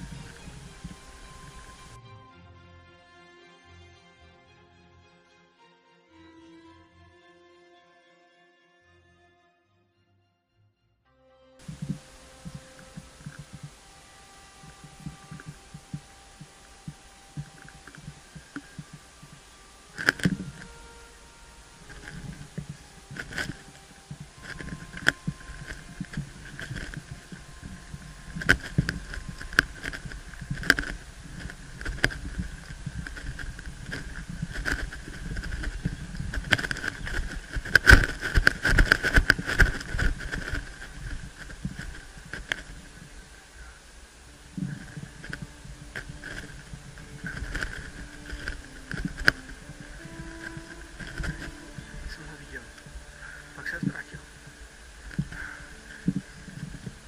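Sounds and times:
faint steady tones: 0:00.0 - 0:02.4, 0:11.6 - 0:57.0
footsteps on forest floor: 0:21.8 - 0:43.0, 0:44.7 - 0:57.0.

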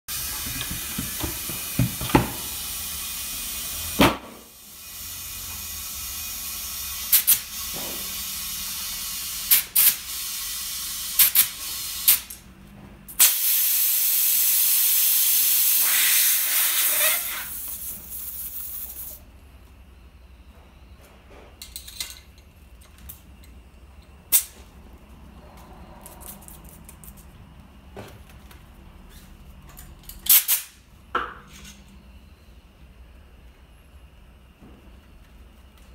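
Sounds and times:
compressed air hissing: 0:00.1 - 0:12.4, 0:13.2 - 0:19.3.

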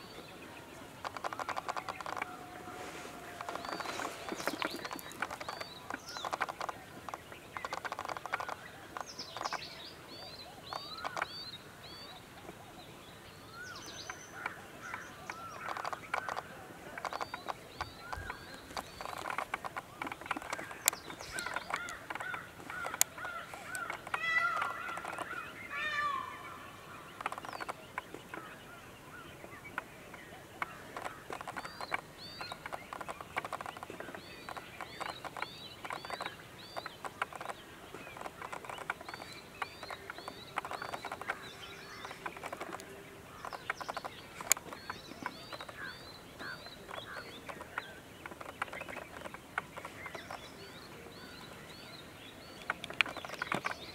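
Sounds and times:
birds chirping: 0:00.0 - 0:53.9
sharp clicks: 0:01.0 - 0:02.4, 0:03.3 - 0:09.8, 0:10.7 - 0:11.5, 0:14.0 - 0:25.5, 0:27.1 - 0:28.5, 0:29.5 - 0:50.6, 0:52.5 - 0:53.9
bird call falling in pitch: 0:23.8 - 0:26.6.

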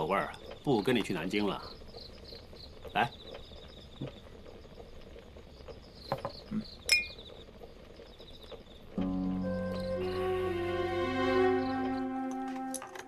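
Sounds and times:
crickets chirping: 0:00.0 - 0:12.8
soft music: 0:09.0 - 0:13.0.

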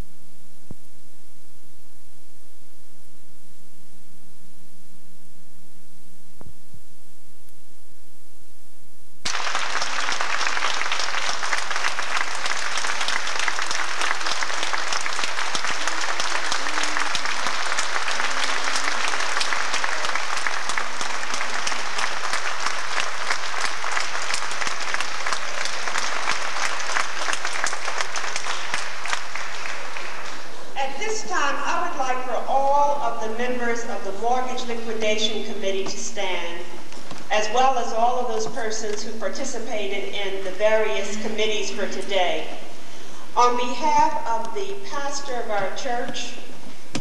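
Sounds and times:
audience applauding: 0:09.2 - 0:30.8.

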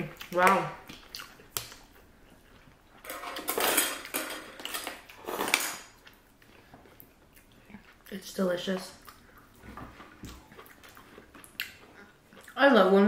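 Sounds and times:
utensils clattering on dishes: 0:03.0 - 0:05.9.

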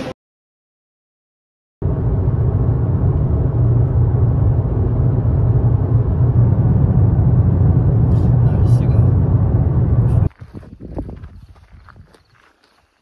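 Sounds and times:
car engine and road noise: 0:01.8 - 0:11.3.

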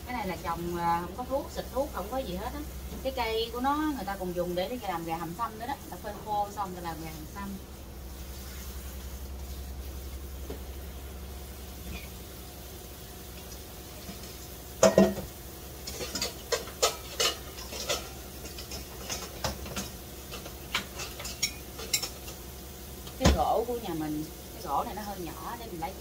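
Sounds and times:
water running from tap: 0:03.8 - 0:26.0
pans clattering: 0:14.1 - 0:22.4
metal cookware clanking: 0:14.8 - 0:22.4.

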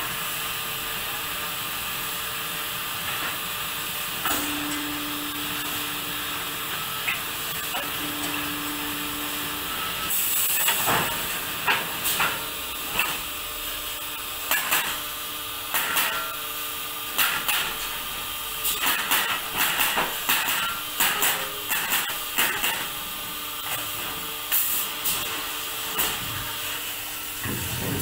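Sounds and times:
machine hum: 0:03.8 - 0:10.6, 0:26.4 - 0:28.0.

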